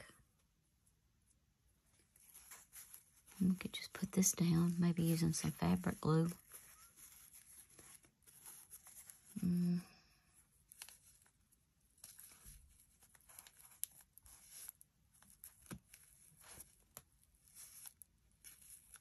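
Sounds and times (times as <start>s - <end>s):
paper rustling and crinkling: 1.9s - 9.5s, 10.2s - 19.0s
person humming: 9.4s - 10.0s.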